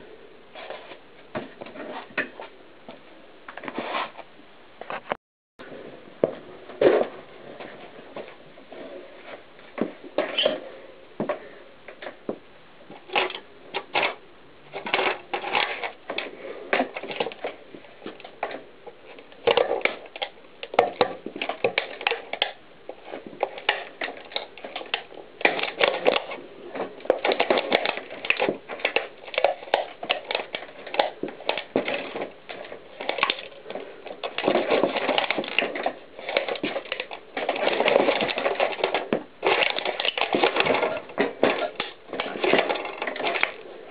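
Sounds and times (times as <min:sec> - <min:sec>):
plastic and metal cracking and crackling: 0:12.9 - 0:43.9.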